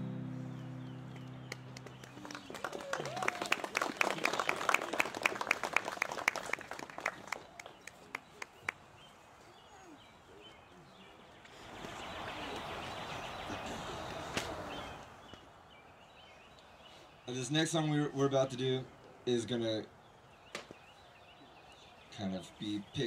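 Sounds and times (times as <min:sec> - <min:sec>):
people clapping: 0:01.1 - 0:08.8, 0:14.0 - 0:14.8
faint bird chirps: 0:07.4 - 0:17.5.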